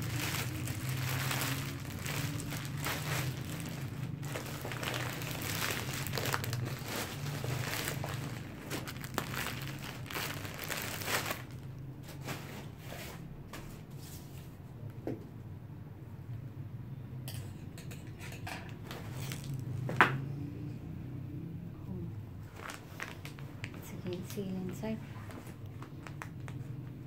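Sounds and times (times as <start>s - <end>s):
plastic bag crinkling: 0.0s - 12.7s, 18.8s - 19.9s, 22.5s - 24.4s.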